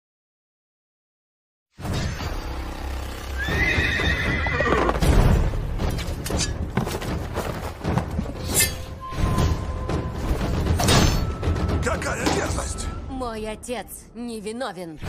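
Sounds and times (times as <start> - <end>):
horse whinnying: 3.4 - 5.0.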